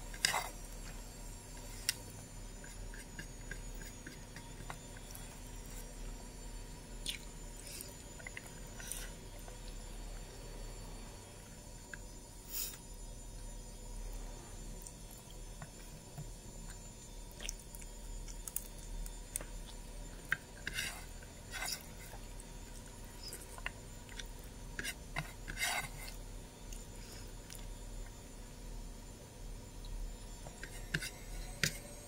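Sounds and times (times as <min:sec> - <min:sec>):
faint steady hum: 0:00.0 - 0:32.0
chewing and mouth clicks: 0:07.0 - 0:09.8, 0:16.6 - 0:20.6, 0:22.1 - 0:24.9.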